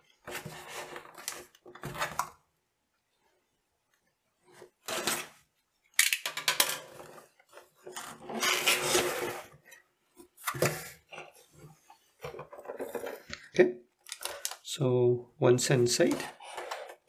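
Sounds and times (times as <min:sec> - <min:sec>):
rasping scrape: 0:08.0 - 0:09.6.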